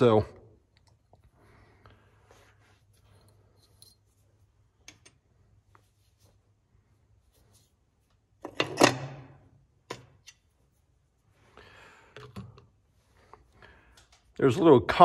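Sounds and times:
tools clattering: 2.9 - 5.2
soft rustle: 5.4 - 8.4.

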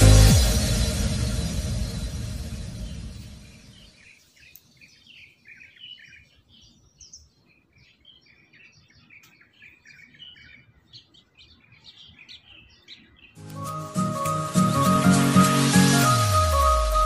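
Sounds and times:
background music: 0.0 - 3.8, 13.4 - 17.0
small birds chirping: 2.4 - 14.0.

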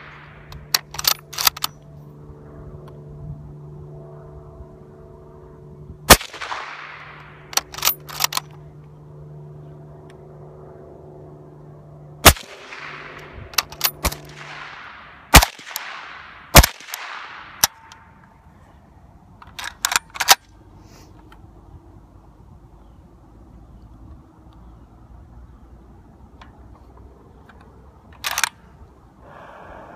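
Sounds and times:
rifle action clicking: 0.5 - 1.8, 6.4 - 8.6, 19.4 - 20.5, 27.5 - 28.6
rifle bolt metallic clacks: 0.5 - 1.9, 6.4 - 8.6, 12.8 - 14.7, 15.4 - 18.1, 19.4 - 20.5, 26.4 - 28.6
suppressed rifle shots with echo: 6.1 - 8.4, 12.2 - 18.2.

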